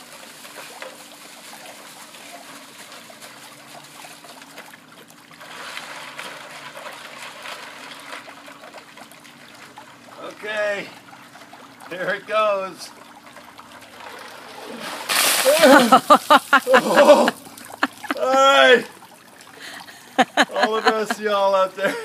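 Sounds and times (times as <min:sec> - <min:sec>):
ice water splashing in metal pail: 0:00.0 - 0:04.8, 0:13.8 - 0:19.0
faint steady hum: 0:00.0 - 0:22.0.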